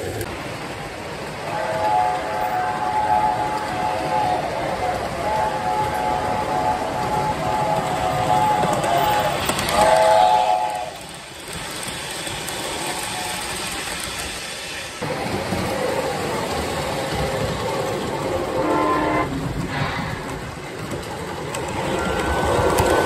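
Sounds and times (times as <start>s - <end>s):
model train wheels clattering: 0.0s - 23.0s
model train chord whistle: 1.5s - 11.0s, 18.5s - 19.3s
short train horn blast: 18.5s - 20.0s.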